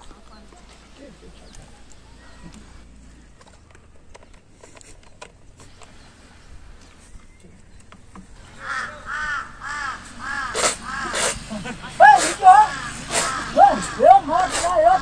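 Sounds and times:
crow cawing: 8.5s - 11.4s, 12.1s - 15.0s.

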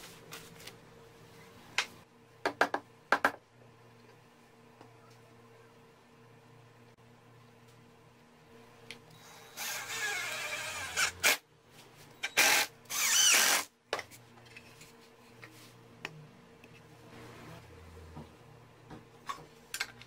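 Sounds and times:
cordless drill driving screws: 9.4s - 11.4s, 12.2s - 13.7s.

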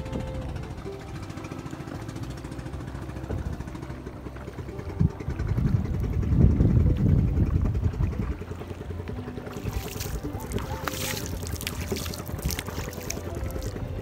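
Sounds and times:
boat motor running: 0.0s - 14.0s
wind noise: 4.9s - 8.7s, 9.6s - 14.0s.

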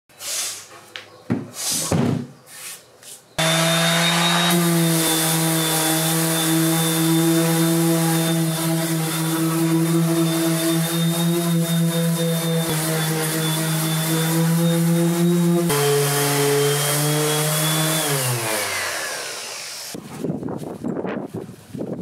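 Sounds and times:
orbital sander sanding: 3.4s - 20.0s.

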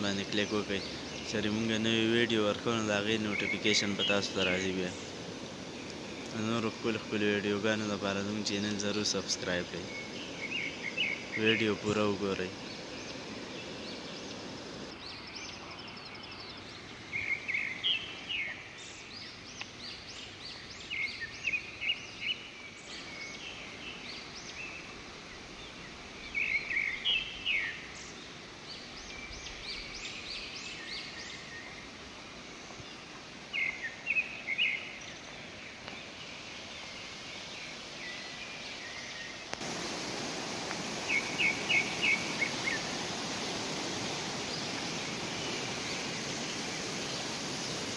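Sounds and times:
river rushing: 0.0s - 15.1s, 29.8s - 47.9s
small birds chirping: 0.0s - 47.9s.

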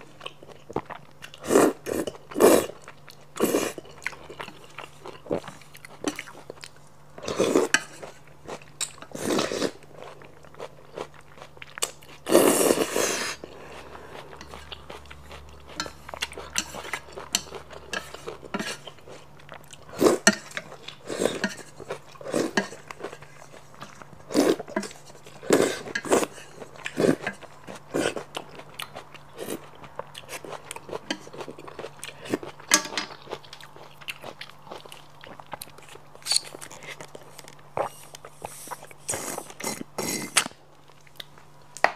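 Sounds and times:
chewing: 0.2s - 41.4s.

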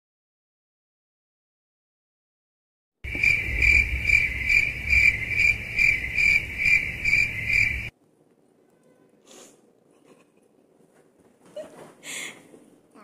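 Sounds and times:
cricket chirping: 3.0s - 7.9s
low rumble: 3.1s - 7.9s.

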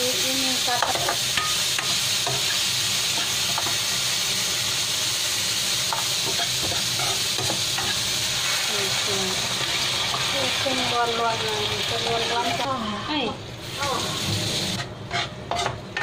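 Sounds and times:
sizzling hiss: 0.0s - 12.7s
spatula scraping pan: 14.0s - 16.0s.

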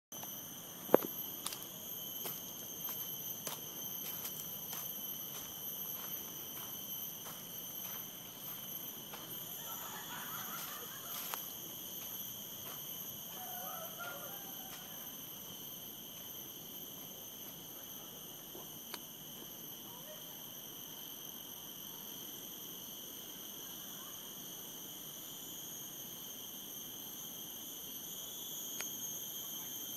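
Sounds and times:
insects droning: 0.1s - 29.9s
footsteps: 1.0s - 9.9s, 10.6s - 15.0s.

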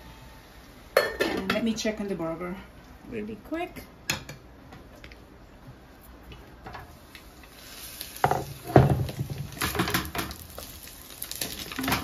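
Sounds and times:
burgers sizzling in a pan: 6.9s - 12.0s.

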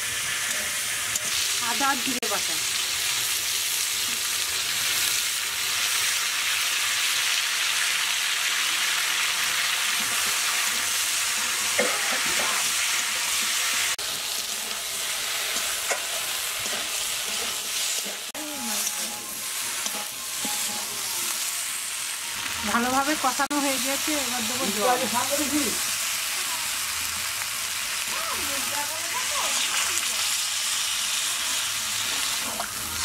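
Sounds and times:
vegetables sizzling in oil: 0.0s - 33.0s
spatula scraping a pan: 10.0s - 21.4s.

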